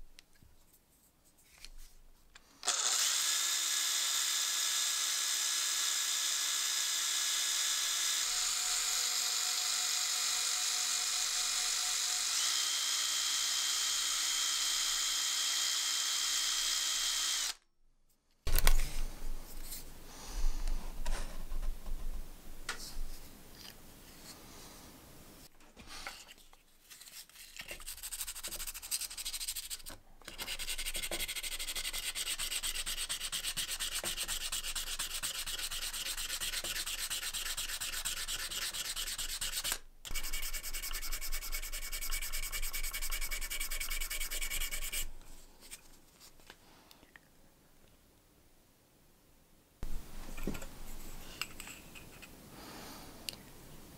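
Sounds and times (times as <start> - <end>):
drill-driven wire brush whirring: 2.6 - 17.6, 30.5 - 45.1
sandpaper rubbing on metal: 27.8 - 45.1.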